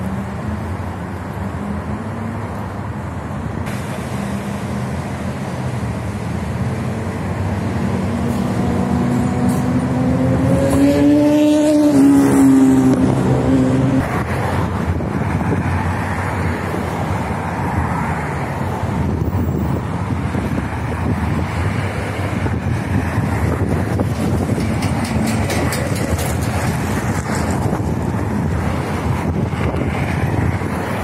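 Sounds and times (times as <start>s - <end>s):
traffic noise: 0.0s - 31.0s
motor engine passing by: 8.0s - 14.0s
wind rushing: 8.6s - 31.0s.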